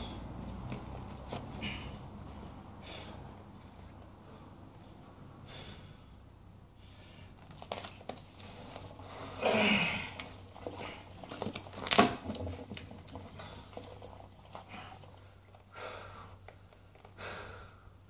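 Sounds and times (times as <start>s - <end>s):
man grunting and breathing heavily: 9.1s - 10.2s.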